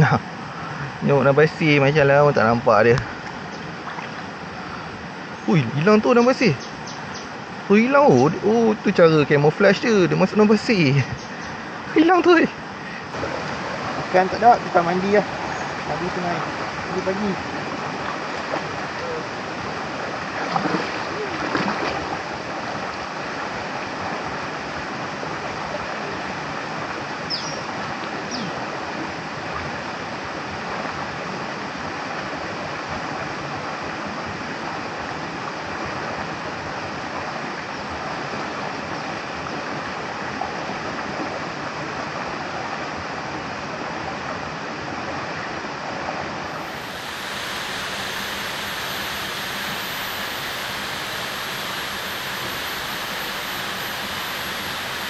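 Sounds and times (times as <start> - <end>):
flowing river water: 0.0 - 55.0
thin high whine: 7.2 - 23.5, 46.2 - 55.0.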